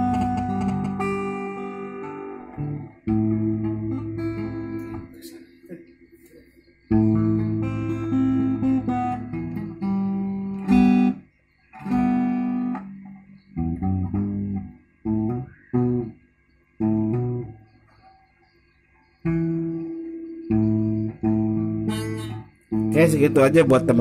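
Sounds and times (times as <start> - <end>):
acoustic guitar chords through amplifier: 0.0 - 24.0.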